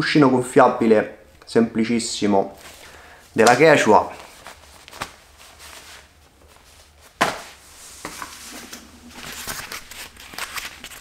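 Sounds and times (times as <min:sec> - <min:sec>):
rustling of items: 0:02.6 - 0:11.0.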